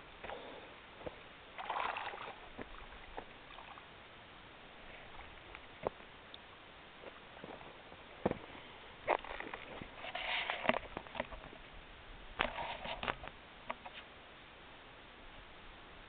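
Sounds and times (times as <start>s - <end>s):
steady low hiss: 0.0s - 16.0s
water splashing: 1.5s - 3.9s.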